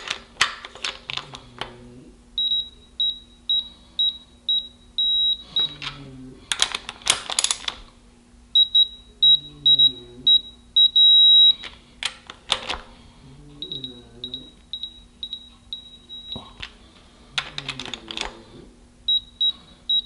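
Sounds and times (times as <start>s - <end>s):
high-pitched electronic beeps: 8.6s - 11.6s
faint snoring: 17.3s - 18.8s.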